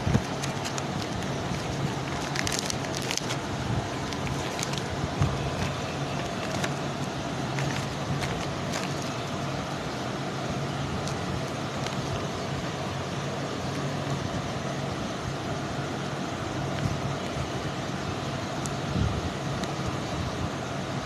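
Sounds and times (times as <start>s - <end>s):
plastic sheet crinkling: 0.0s - 9.3s.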